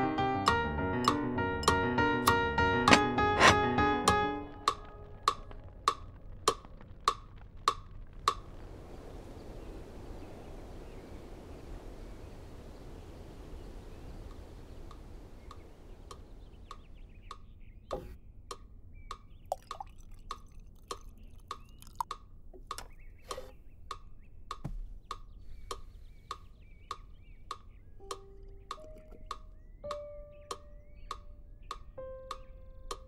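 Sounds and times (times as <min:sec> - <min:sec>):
soft low rushing noise: 0:04.5 - 0:17.2
sharp clicks: 0:14.3 - 0:33.0.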